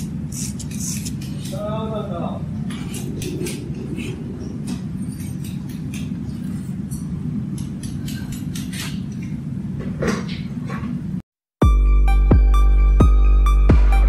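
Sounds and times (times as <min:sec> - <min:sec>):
low rumble: 0:02.4 - 0:07.8.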